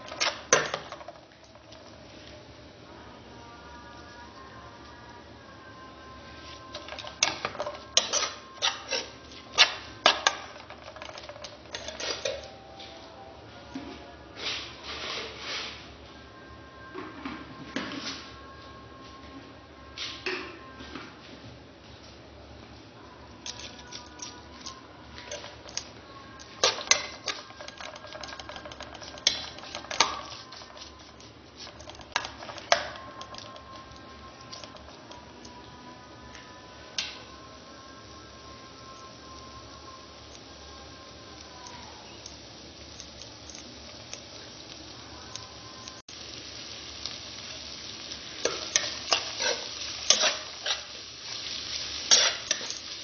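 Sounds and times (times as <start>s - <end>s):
metal spoon clinking in pot: 6.7s - 12.5s, 23.5s - 30.8s, 48.4s - 51.0s, 52.1s - 53.0s.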